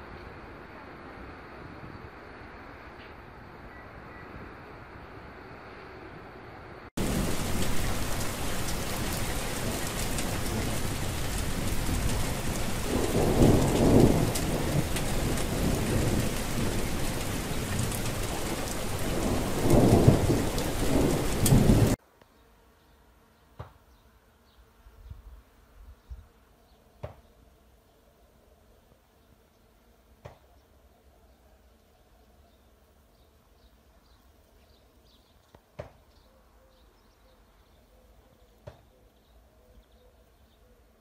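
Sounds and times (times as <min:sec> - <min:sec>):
heavy rain: 0:07.0 - 0:22.0
rolls of thunder: 0:07.0 - 0:22.0.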